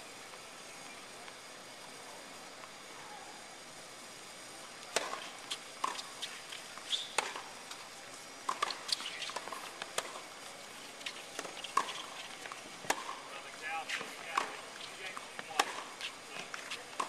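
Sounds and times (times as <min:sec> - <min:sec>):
tennis ball bouncing on court: 0:04.9 - 0:07.8, 0:08.4 - 0:17.0
tennis ball hitting racquet: 0:04.9 - 0:07.8, 0:08.4 - 0:17.0.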